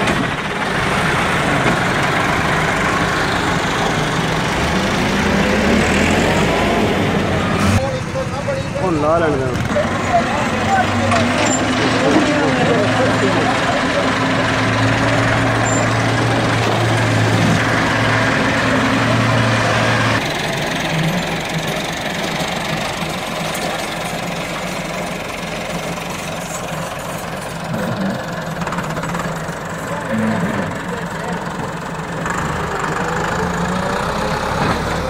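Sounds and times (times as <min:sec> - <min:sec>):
heavy diesel engine running: 0:00.0 - 0:35.0
tractor diesel engine: 0:00.0 - 0:35.0.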